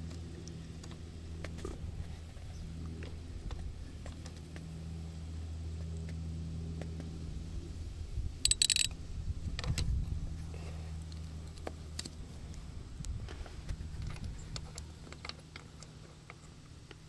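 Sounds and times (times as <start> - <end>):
metallic rattle: 8.4 - 8.9.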